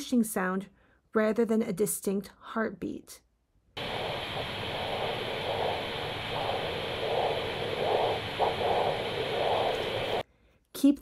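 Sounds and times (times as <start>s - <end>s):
doppler ultrasound whooshing: 3.8s - 10.2s
steady hiss: 3.8s - 10.2s.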